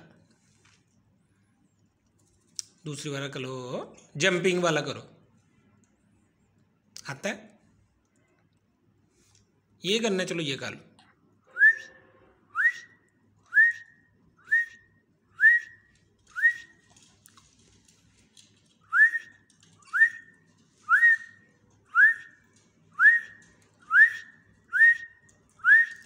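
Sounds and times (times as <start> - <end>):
person whistling short rising notes: 11.5 - 12.9, 23.0 - 26.0.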